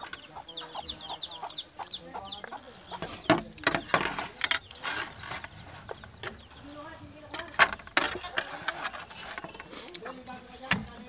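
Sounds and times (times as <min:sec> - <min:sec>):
chickens clucking: 0:00.0 - 0:11.0
high insect drone: 0:00.0 - 0:11.0
small birds chirping: 0:00.0 - 0:11.0.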